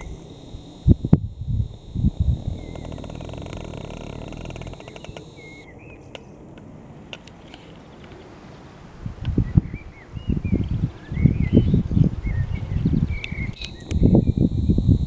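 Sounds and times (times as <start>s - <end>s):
engine running fast even beat: 0.0s - 5.6s
small birds chirping: 0.0s - 8.1s, 9.4s - 15.0s.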